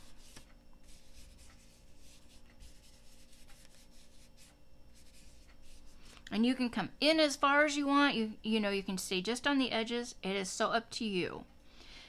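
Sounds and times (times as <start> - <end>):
soft scrubbing on cardstock: 0.0 - 6.1
low steady hum: 0.0 - 12.0.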